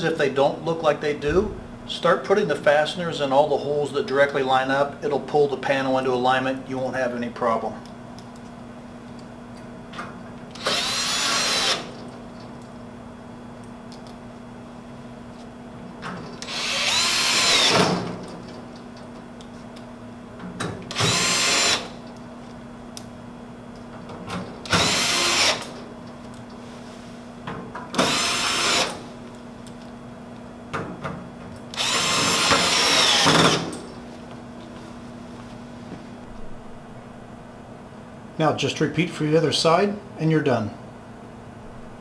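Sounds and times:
cordless screwdriver whirring: 10.5 - 11.9, 16.4 - 18.0, 20.9 - 22.0, 24.7 - 25.8, 28.0 - 29.0, 31.7 - 33.6.

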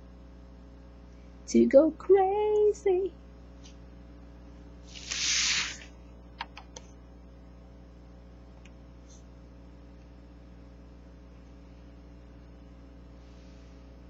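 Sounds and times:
steady low hum: 0.0 - 14.0
paper rustling: 4.9 - 5.9.

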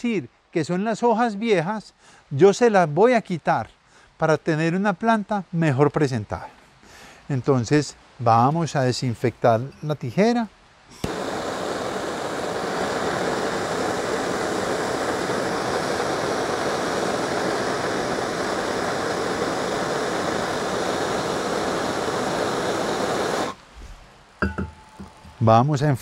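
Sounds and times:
blowtorch flame hissing: 10.9 - 25.4.

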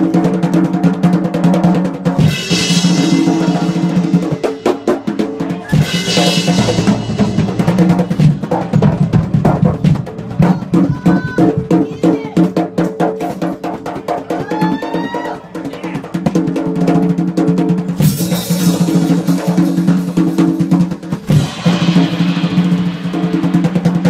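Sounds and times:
drum kit solo: 0.0 - 24.0
cymbal crash: 2.2 - 9.1, 21.1 - 24.0.

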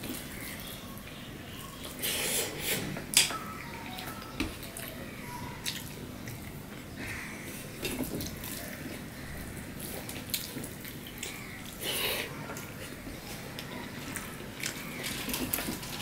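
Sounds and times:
soft chewing: 3.9 - 16.0.

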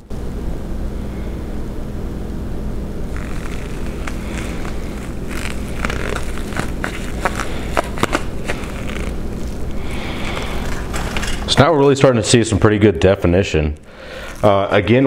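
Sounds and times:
low hum: 0.0 - 11.8.

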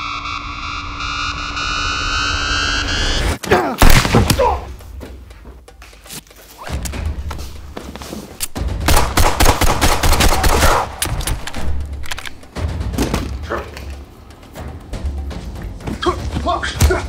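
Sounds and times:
pistol gunfire: 8.9 - 11.1.

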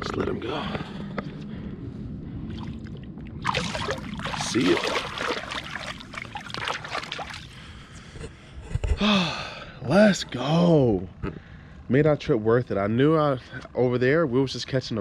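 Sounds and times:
water splashing: 2.5 - 7.6.

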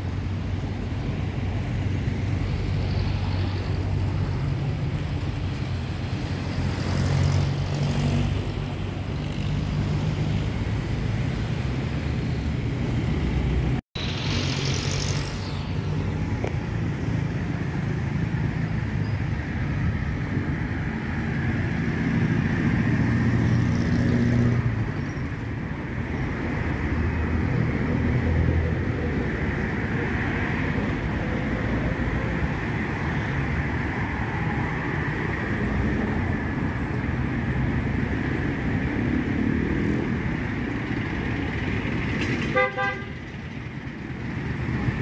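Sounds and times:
vehicles passing close by: 0.0 - 45.0
vehicle horn toot: 42.5 - 43.2.

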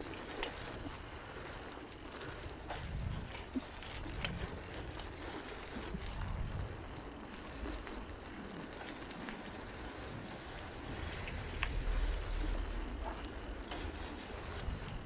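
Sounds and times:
wind buffeting microphone: 0.0 - 15.0
car approaching: 6.7 - 15.0
thin high whistle: 9.2 - 12.7
low rumble: 9.2 - 15.0.

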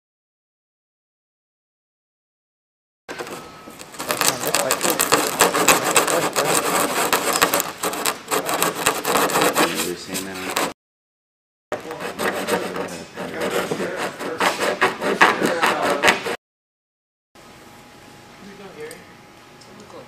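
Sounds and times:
sandpaper rasping scrape: 3.2 - 10.8, 11.8 - 16.4.

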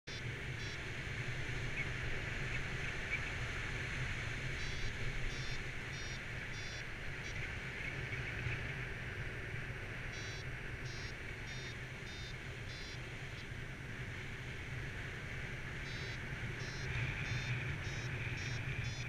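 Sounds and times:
high electronic beeps: 10.2 - 13.0, 15.9 - 19.0.

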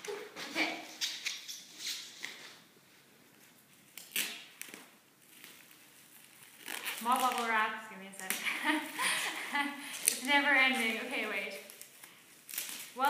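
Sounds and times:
paper and cardboard rustling: 4.6 - 7.8.

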